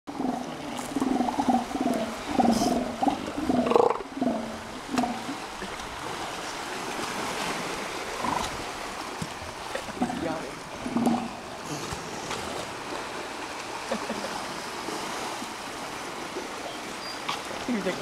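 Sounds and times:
elephant seals pulsed calls: 0.1 - 5.5, 8.1 - 8.6, 9.6 - 11.9, 16.6 - 17.6
water lapping and splashing: 0.1 - 18.0.

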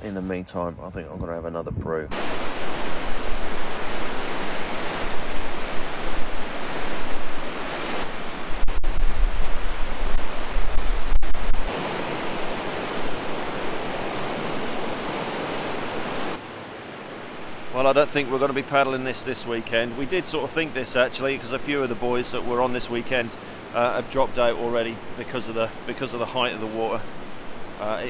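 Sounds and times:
wind rumble on microphone: 0.6 - 16.4
river rushing roar: 2.1 - 28.0.

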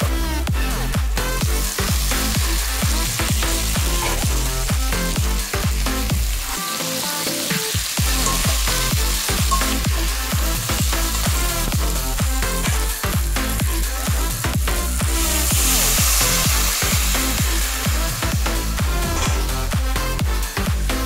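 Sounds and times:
electronic dance music: 0.0 - 21.0
vegetables sizzling in a pan: 1.4 - 20.0
spatula stirring vegetables: 6.7 - 14.0.

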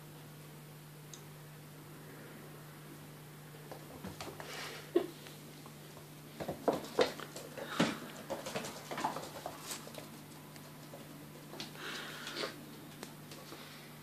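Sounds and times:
kittens' paws pattering: 3.6 - 13.7
rustling: 6.4 - 13.6.

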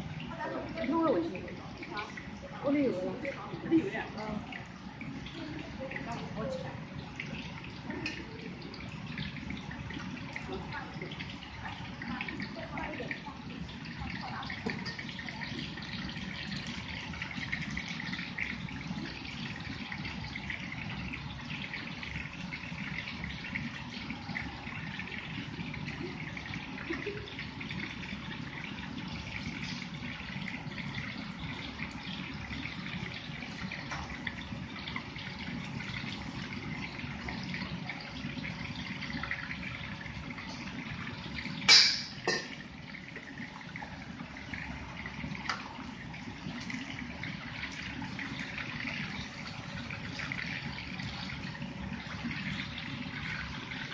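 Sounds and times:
food deep-frying in oil: 0.0 - 53.9
water running from tap into pot: 0.0 - 53.9
tap running into pot: 14.6 - 15.2, 41.6 - 43.4
food sizzling in hot oil: 41.7 - 42.6
ladle banging on wok: 41.7 - 42.6.

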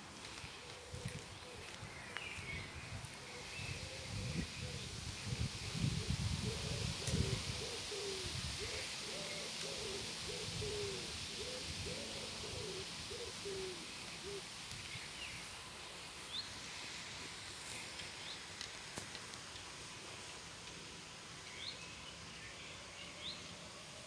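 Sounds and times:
steady background hiss: 0.0 - 24.0
pigeon cooing: 6.0 - 14.5.

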